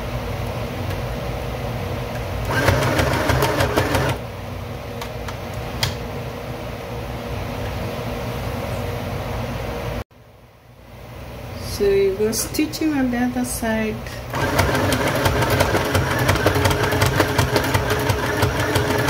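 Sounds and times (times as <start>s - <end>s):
sewing machine motor hum: 2.4s - 4.2s, 14.3s - 19.0s.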